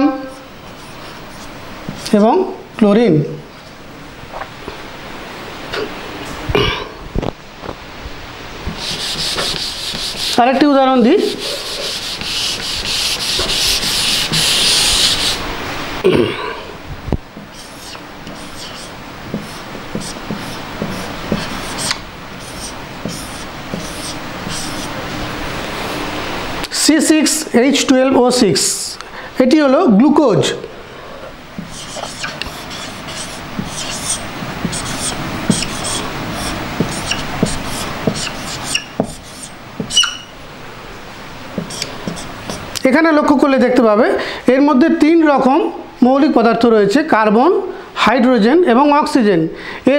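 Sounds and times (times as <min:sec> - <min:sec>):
eraser rubbing whiteboard: 0:00.3 - 0:02.2, 0:08.7 - 0:10.4, 0:11.2 - 0:15.4, 0:17.4 - 0:25.0, 0:31.6 - 0:40.3, 0:41.6 - 0:42.7
steady hiss: 0:03.5 - 0:16.1, 0:16.7 - 0:29.4, 0:30.4 - 0:42.8.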